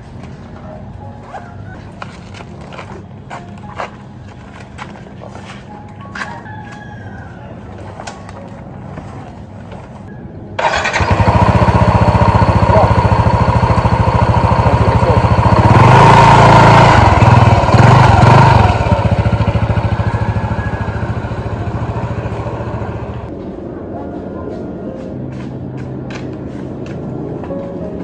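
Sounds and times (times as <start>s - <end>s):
motor scooter engine: 10.6s - 23.3s.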